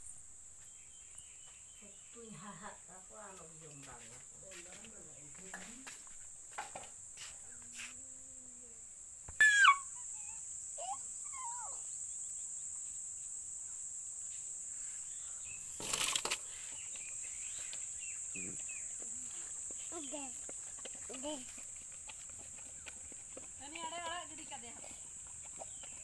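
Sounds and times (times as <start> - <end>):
insects chirring: 0.0 - 26.0
short falling squeal: 9.3 - 10.0.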